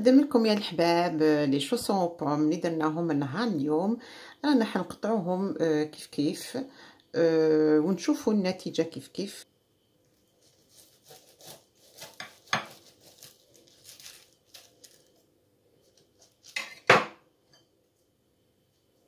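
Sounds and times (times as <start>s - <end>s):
knife sawing through crispy pastry: 10.4s - 14.7s
cutlery clinking on plate: 16.5s - 17.7s.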